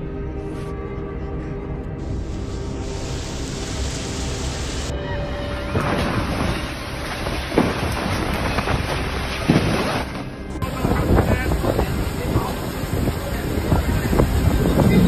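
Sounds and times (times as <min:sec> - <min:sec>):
sharp crackles: 0:05.7 - 0:12.6
storm rushing noise: 0:05.7 - 0:15.0.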